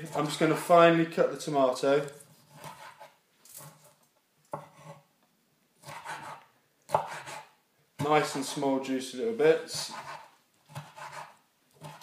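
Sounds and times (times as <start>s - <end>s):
knife cutting on wooden board: 2.2s - 5.1s, 5.8s - 8.6s, 9.7s - 12.0s.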